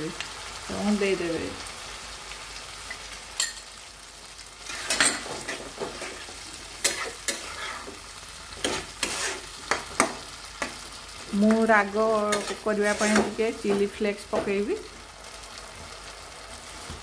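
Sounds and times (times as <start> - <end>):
vegetables sizzling in a pan: 0.0 - 17.0
spatula scraping and knocking pan: 4.6 - 10.9, 12.3 - 14.6.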